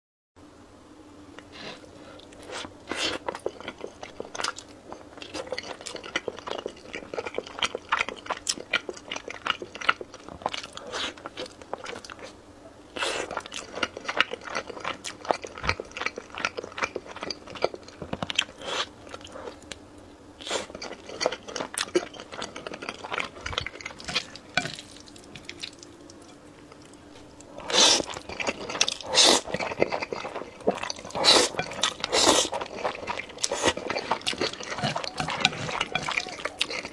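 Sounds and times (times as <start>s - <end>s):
bun being chewed: 2.2s - 19.8s, 20.4s - 36.9s
slurping noodles: 27.5s - 36.9s.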